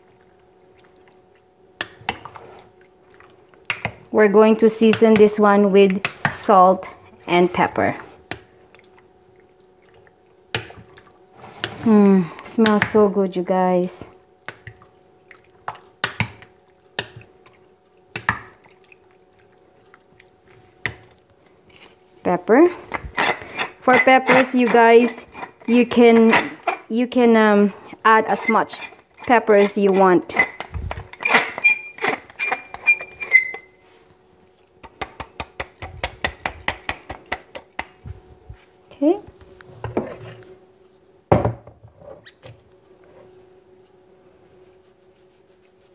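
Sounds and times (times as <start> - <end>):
sharp clicks and slaps: 34.8 - 38.0.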